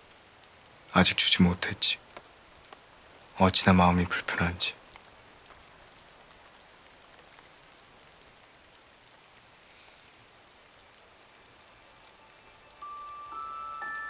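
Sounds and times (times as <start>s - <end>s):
soft steady rain: 0.0s - 14.0s
faint drips: 0.4s - 12.9s
chiming music note: 12.8s - 14.0s.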